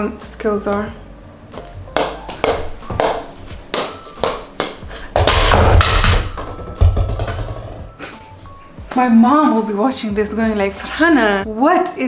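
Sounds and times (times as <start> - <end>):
ball tapping on wooden paddle: 2.0 - 7.8.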